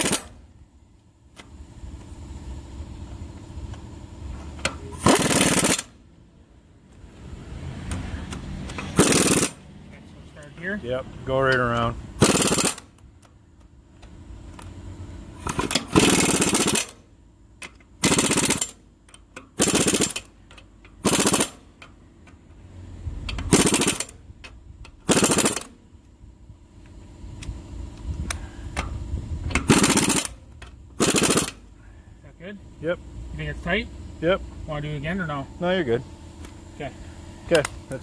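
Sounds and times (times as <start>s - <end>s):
air impact wrench rattling: 0.0s - 0.5s, 4.6s - 6.0s, 8.2s - 9.6s, 11.5s - 13.2s, 15.3s - 22.0s, 23.2s - 25.8s, 28.7s - 31.8s.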